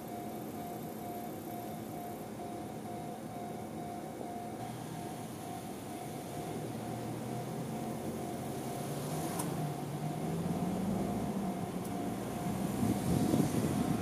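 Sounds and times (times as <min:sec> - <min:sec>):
level crossing warning bell: 0:00.0 - 0:09.0, 0:09.6 - 0:14.0.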